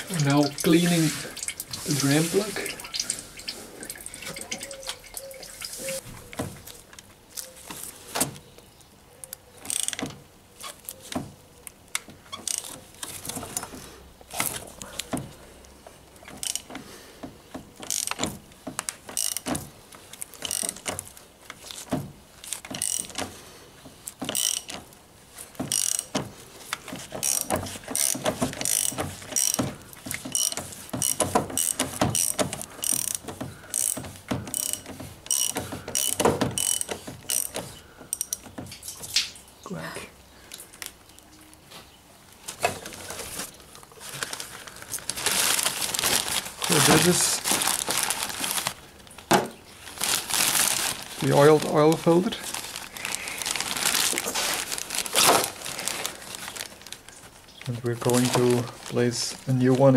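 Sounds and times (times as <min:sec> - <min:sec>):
ratchet wrench clicking: 0:30.3 - 0:38.4.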